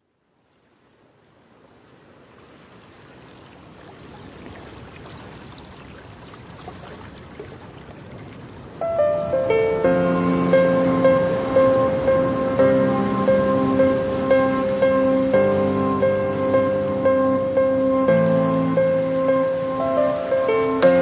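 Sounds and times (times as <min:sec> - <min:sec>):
water rushing: 0:00.6 - 0:21.0
music with held piano notes: 0:08.8 - 0:21.0.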